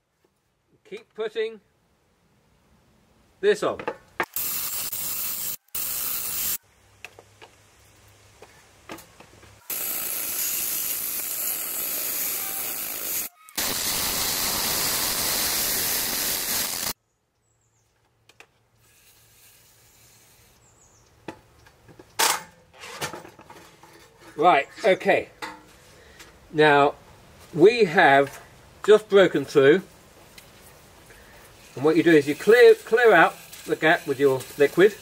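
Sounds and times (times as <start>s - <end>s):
drill hole saw grinding steel: 9.7s - 17.0s, 31.7s - 35.0s.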